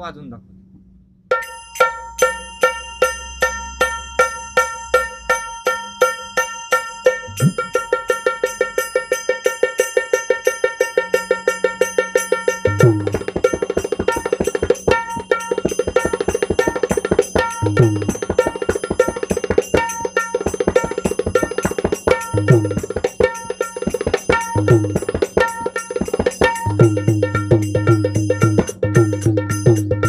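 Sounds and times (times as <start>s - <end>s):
ringing treble drum strokes: 1.3s - 30.0s
deep bass drum booms: 12.7s - 13.4s, 17.6s - 18.3s.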